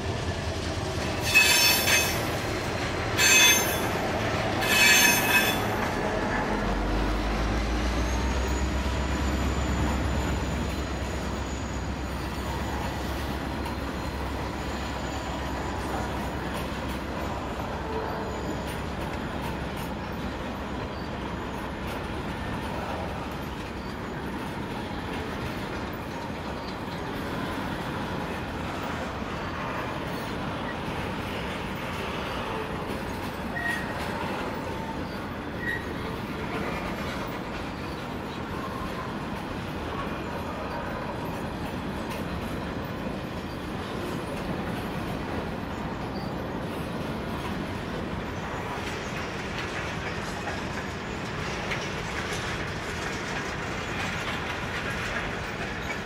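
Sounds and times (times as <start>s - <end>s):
train wheels rumbling on rails: 0.0s - 56.0s
high wheel squeals: 1.1s - 2.4s, 3.2s - 24.5s, 25.9s - 39.2s.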